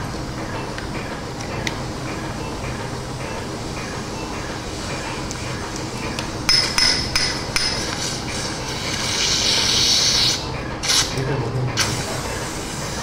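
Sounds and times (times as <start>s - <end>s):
mallet tapping metal: 6.5s - 7.8s.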